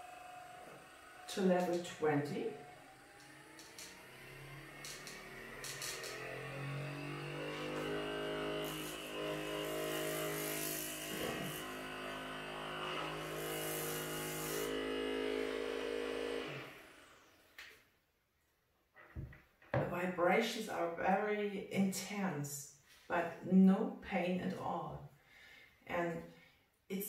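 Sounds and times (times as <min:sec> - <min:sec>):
massage gun motor buzzing: 0:00.0 - 0:17.5.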